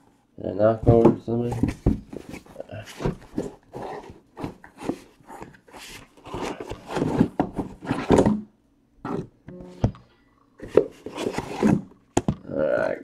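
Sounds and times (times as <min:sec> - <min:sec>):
cardboard boxes knocking and sliding: 0:00.8 - 0:08.5.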